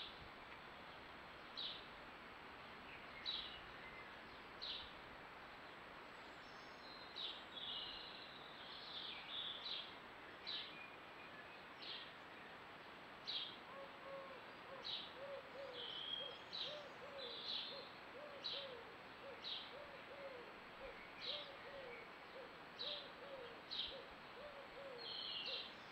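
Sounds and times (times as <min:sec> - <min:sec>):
faint background hiss: 0:00.0 - 0:25.9
songbird chirping: 0:02.6 - 0:25.9
pigeon cooing: 0:13.7 - 0:15.9, 0:16.6 - 0:25.6.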